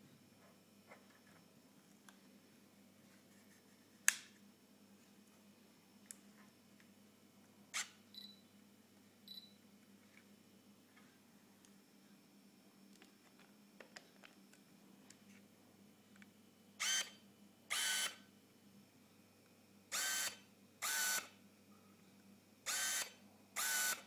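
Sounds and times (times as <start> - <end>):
lens autofocus motor whirring: 16.8 - 18.2, 19.9 - 21.4, 22.7 - 24.0.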